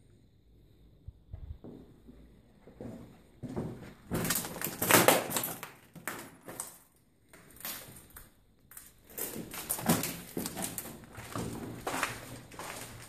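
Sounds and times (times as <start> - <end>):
footsteps crunching over debris: 2.7 - 6.8, 7.4 - 13.0.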